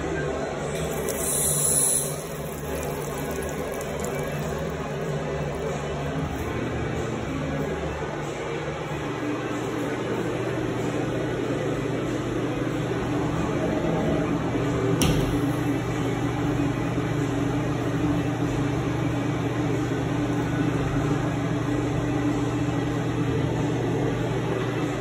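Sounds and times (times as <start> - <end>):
ventilation hum: 0.0 - 25.0.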